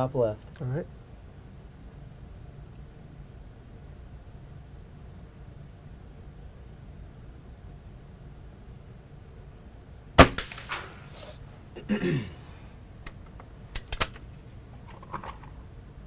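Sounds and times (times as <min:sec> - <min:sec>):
air rifle shot: 0:10.2 - 0:11.3
sharp metallic clicks: 0:13.0 - 0:14.2.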